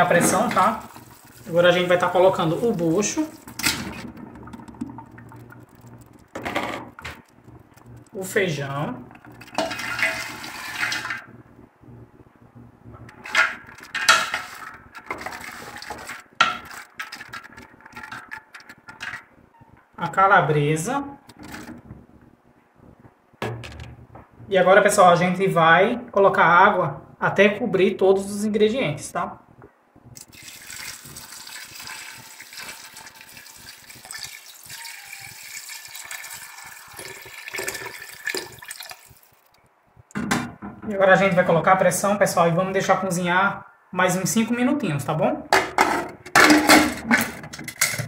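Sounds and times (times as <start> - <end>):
water pouring into pot: 0.0 - 11.3, 13.2 - 19.2, 30.2 - 39.6
wooden spoon scraping pot: 9.0 - 11.3, 13.1 - 19.3
sharp knocks: 23.4 - 24.2.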